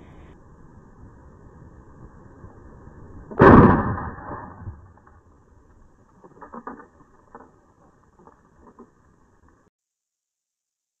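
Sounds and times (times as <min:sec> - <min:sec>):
rifle shot: 0:03.3 - 0:04.9.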